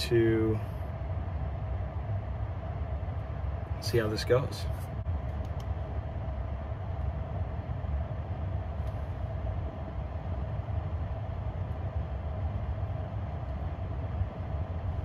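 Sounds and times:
faint steady hum: 0.0s - 15.0s
road and running-gear noise: 0.0s - 15.0s.

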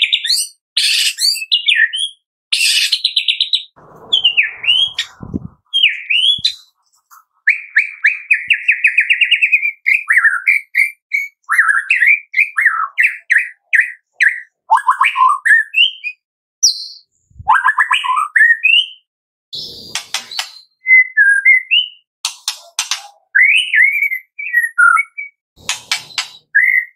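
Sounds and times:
songbird singing: 3.0s - 19.0s.

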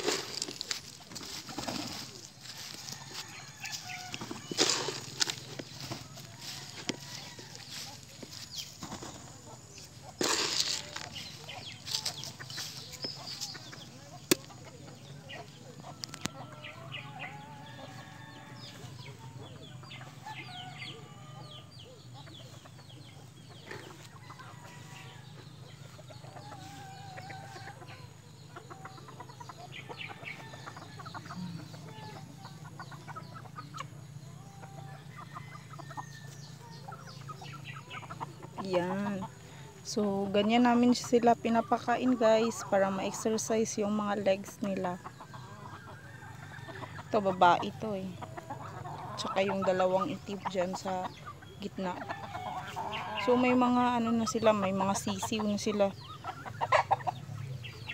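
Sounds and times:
wings rustling: 0.0s - 13.6s
chickens clucking: 0.0s - 57.9s.

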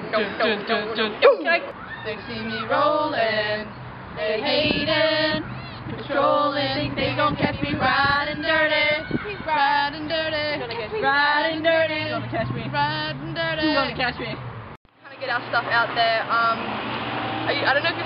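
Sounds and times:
young female voices singing: 0.0s - 14.4s.

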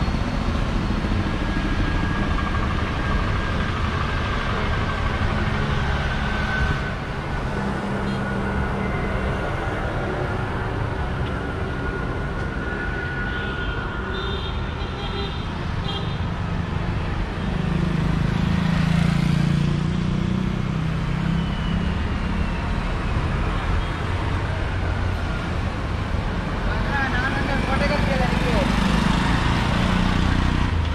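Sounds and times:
steady road hum: 0.0s - 30.9s
motorbike engines passing: 26.1s - 30.9s.

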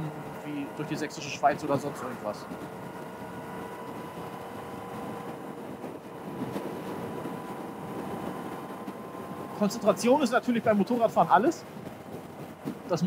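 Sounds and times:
motorcycle engine: 0.0s - 13.0s
wind noise: 0.0s - 13.0s.

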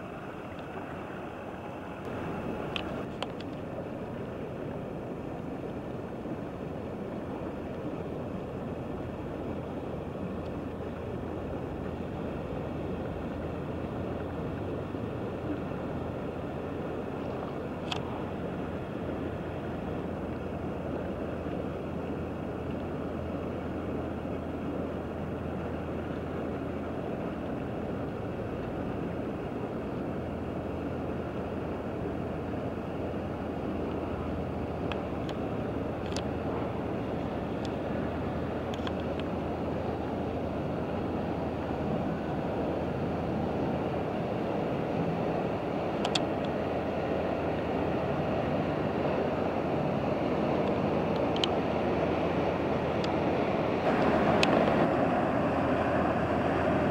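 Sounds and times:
barge diesel engine drone: 0.0s - 56.9s
faint wind and water: 0.0s - 56.9s
small tick: 0.5s - 0.7s, 2.0s - 3.7s, 17.3s - 18.1s, 34.8s - 35.4s, 36.0s - 36.3s, 38.7s - 39.3s, 46.0s - 46.6s, 50.6s - 51.6s.

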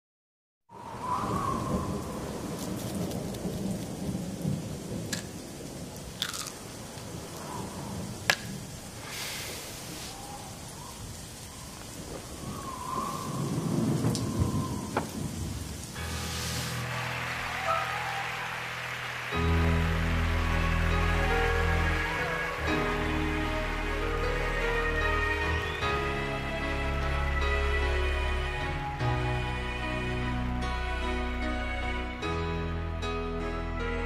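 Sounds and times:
faint wind whistle: 0.7s - 3.0s, 7.3s - 8.2s, 9.9s - 19.2s, 20.6s - 29.6s
rolling thunder: 0.7s - 9.0s, 10.2s - 17.7s
steady rain: 0.7s - 33.0s
sharp thunder cracks: 12.0s - 16.1s
held musical tones: 16.0s - 34.0s.

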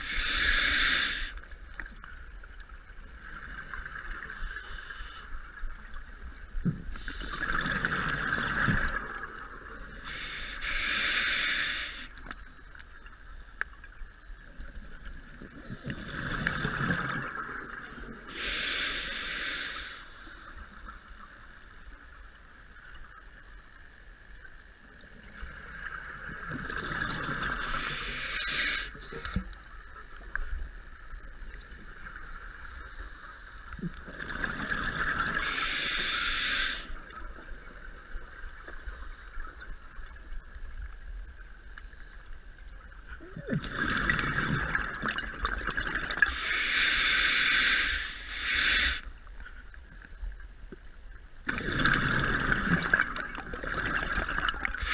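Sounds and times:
regulator inhale hiss: 0.0s - 1.8s, 4.3s - 5.6s, 6.9s - 7.6s, 9.9s - 12.4s, 18.1s - 20.9s, 27.5s - 29.6s, 35.2s - 37.2s, 46.2s - 49.2s
exhaled bubbles rushing: 43.4s - 46.3s, 51.5s - 54.8s.

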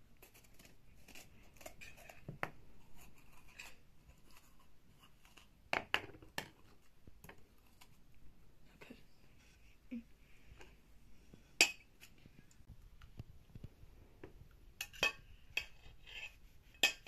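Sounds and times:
metal spoons scraping a steel bowl: 14.8s - 17.0s.

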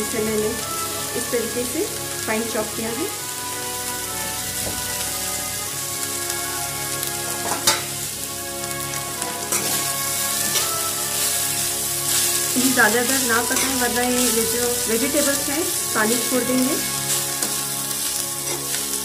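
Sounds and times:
vegetables sizzling in hot oil: 0.0s - 19.0s
spatula knocking on pan: 7.4s - 7.9s
metal spatula stirring: 7.4s - 8.0s, 8.7s - 19.0s.

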